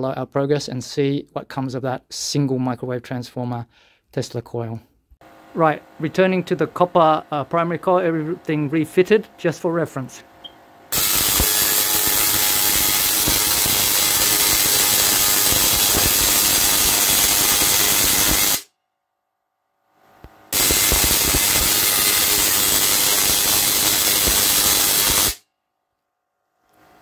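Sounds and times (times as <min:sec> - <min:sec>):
tesla coil discharges crackling: 0:10.9 - 0:18.7, 0:20.5 - 0:25.4.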